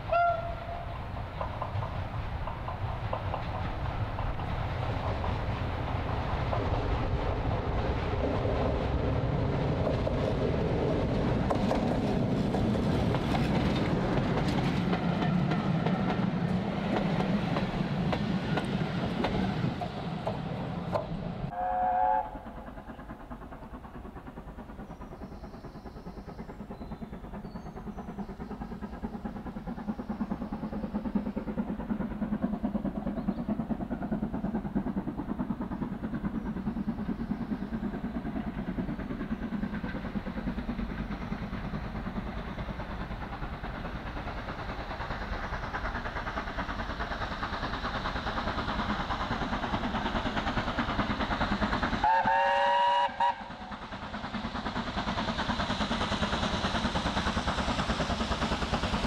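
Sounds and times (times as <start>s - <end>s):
train horn blast: 0.0s - 0.9s, 21.5s - 22.4s, 52.0s - 53.6s
train wheels clattering: 0.0s - 21.3s, 22.3s - 59.0s
diesel locomotive engine running: 0.0s - 59.0s.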